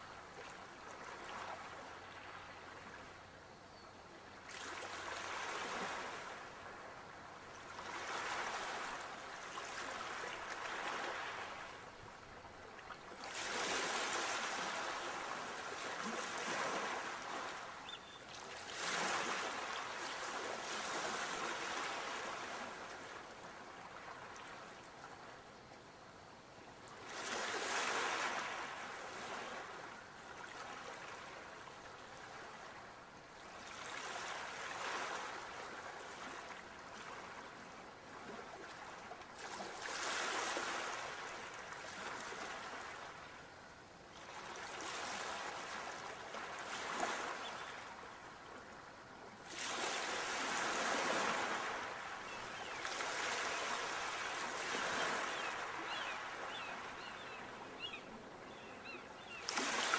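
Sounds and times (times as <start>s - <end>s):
sea waves breaking: 58.6s - 59.9s.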